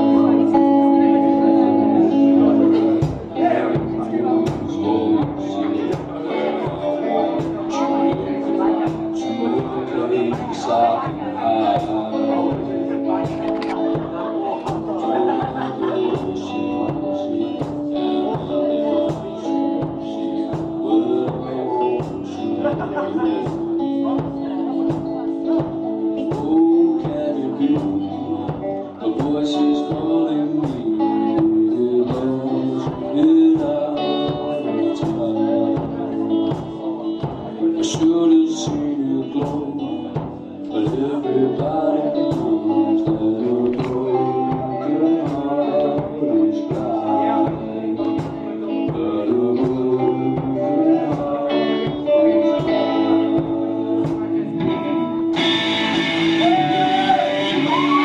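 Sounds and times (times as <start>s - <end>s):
bass guitar: 0.0s - 58.0s
electric guitars: 0.0s - 58.0s
man singing: 0.0s - 58.0s
rock band playing: 0.0s - 58.0s
drum beat: 2.7s - 27.2s, 27.8s - 58.0s
drum hits: 2.9s - 15.0s.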